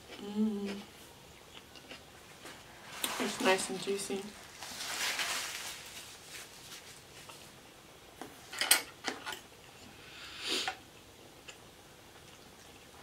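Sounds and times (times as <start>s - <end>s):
soft rustle: 2.4s - 7.6s.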